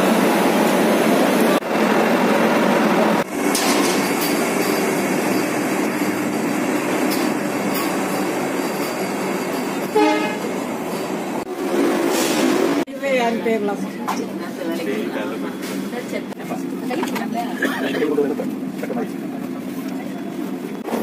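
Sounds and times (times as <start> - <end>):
electric train running: 0.0 - 12.9
short train horn toot: 9.9 - 10.5.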